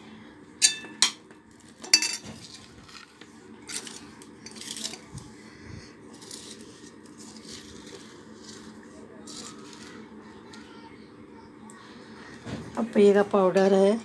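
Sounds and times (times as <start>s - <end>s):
spoon clinking metal bowl: 1.9s - 2.2s
spoon scraping and stirring: 3.7s - 5.1s.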